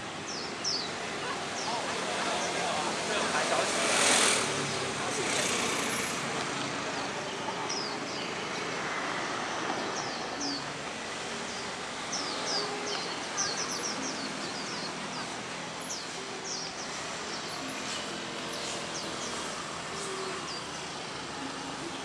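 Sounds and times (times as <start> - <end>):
birds chirping high and thin: 0.0 - 22.0.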